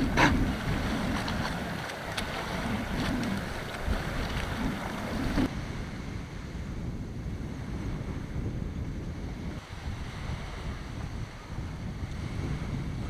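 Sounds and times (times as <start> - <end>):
water washing against hull: 0.0 - 5.6
wind buffeting microphone: 0.0 - 13.0.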